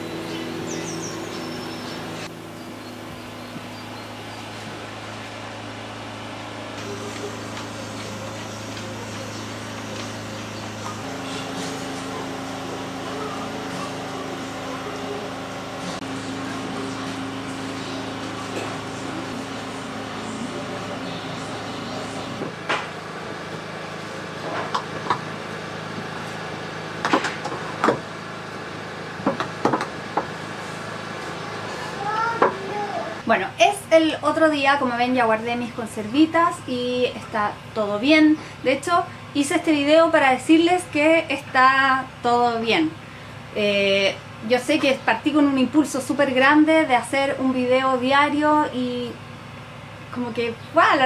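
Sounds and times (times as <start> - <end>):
pressure canner hum and hiss: 0.0 - 34.5.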